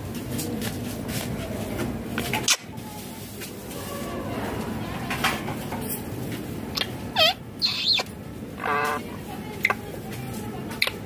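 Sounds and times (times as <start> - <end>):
parakeets squawking: 6.8 - 9.1.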